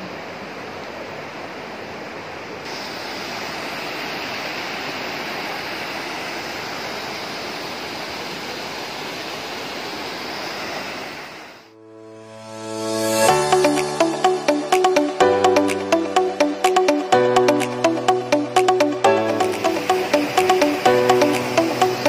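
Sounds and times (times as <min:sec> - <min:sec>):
stream rushing over rocks: 0:00.0 - 0:11.7, 0:19.1 - 0:22.0.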